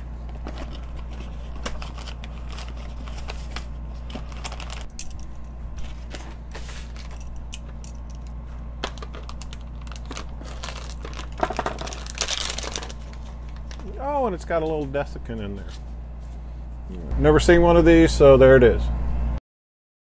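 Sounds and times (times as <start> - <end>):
steady low hum: 0.0 - 19.4
crinkly plastic bag rustling: 0.3 - 5.0, 5.7 - 14.8.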